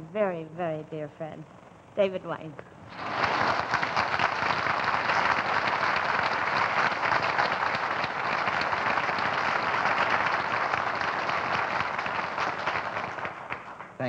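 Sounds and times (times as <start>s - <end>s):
audience applauding: 2.9s - 14.0s.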